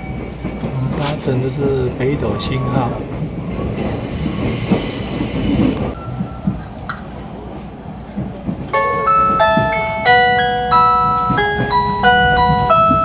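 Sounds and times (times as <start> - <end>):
train running rumble: 0.0 - 13.0
chime melody over speakers: 8.7 - 13.0
steady high ring: 8.7 - 13.0.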